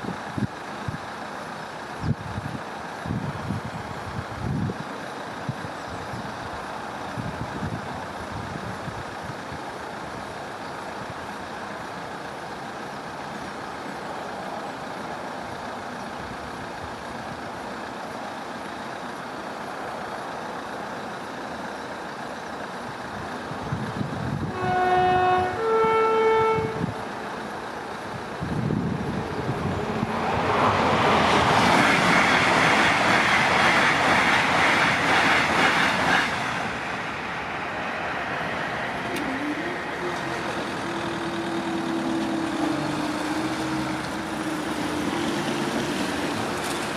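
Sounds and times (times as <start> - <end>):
train passing at speed: 0.0 - 46.9
two-tone train horn: 24.4 - 27.0.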